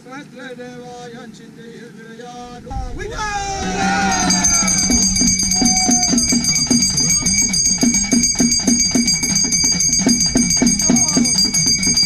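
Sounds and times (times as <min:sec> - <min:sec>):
drums beating fast rhythm: 0:02.5 - 0:12.0
bells ringing: 0:03.6 - 0:12.0.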